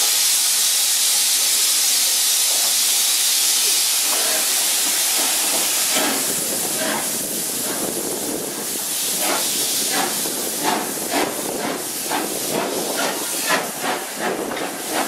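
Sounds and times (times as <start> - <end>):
steam locomotive hissing: 0.0 - 15.0
locomotive puffs: 4.0 - 15.0.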